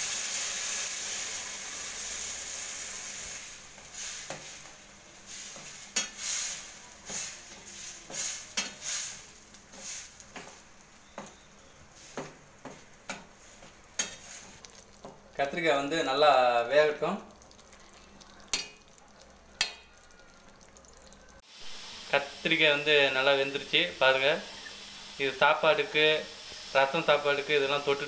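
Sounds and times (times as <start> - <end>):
curry sizzling in a pan: 0.0 - 28.0
faint simmer: 0.0 - 28.0
spatula scraping a pan: 3.8 - 11.4, 12.0 - 15.2.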